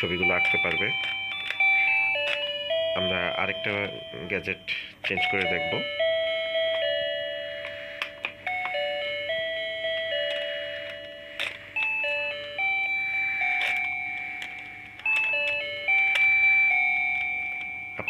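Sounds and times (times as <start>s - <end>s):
electronic chime tune: 0.0s - 18.0s.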